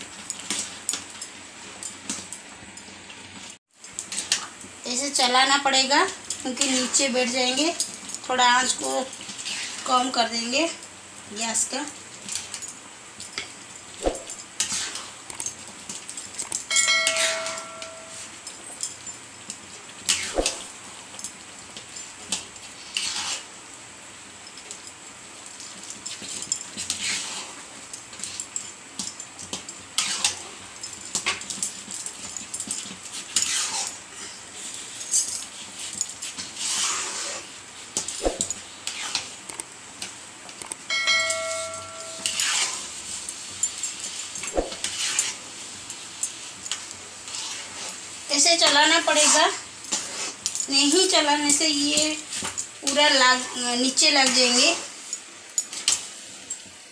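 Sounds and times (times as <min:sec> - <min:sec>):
short chime: 0:16.7 - 0:18.3, 0:40.9 - 0:42.4
steel ladle scraping a pan: 0:42.2 - 0:43.0, 0:44.8 - 0:45.4.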